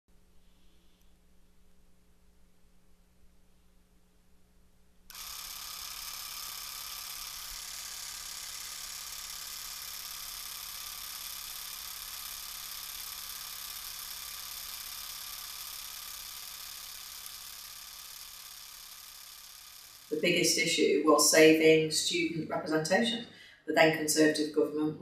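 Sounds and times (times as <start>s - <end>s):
film projector whirring: 5.1s - 20.9s.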